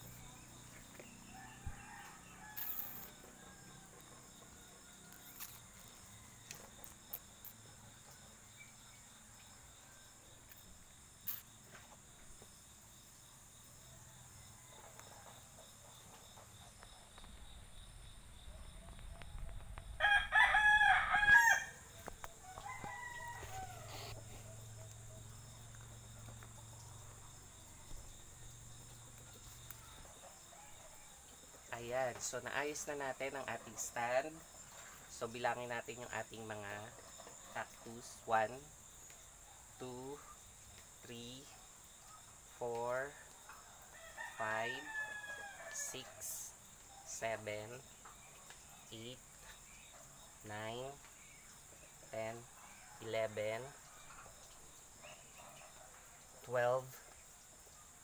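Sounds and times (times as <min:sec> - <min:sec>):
high insect drone: 0:00.0 - 0:58.0
rooster crowing: 0:01.3 - 0:06.7, 0:19.8 - 0:28.2, 0:43.5 - 0:46.3.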